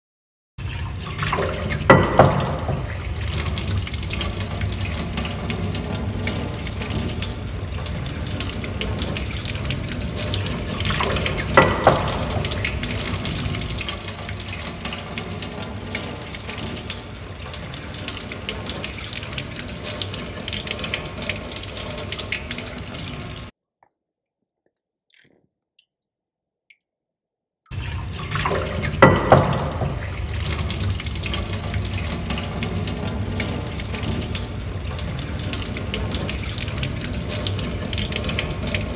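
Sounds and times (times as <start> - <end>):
water running: 0.6 - 23.5, 27.7 - 38.9
sharp knocks: 1.9 - 2.9, 11.5 - 12.6, 29.0 - 30.0.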